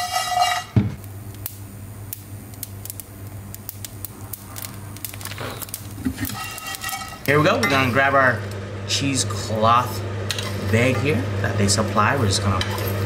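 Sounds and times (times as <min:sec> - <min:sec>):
spices crackling in a dry pan: 0:00.0 - 0:08.7
steady low hum: 0:00.0 - 0:13.0.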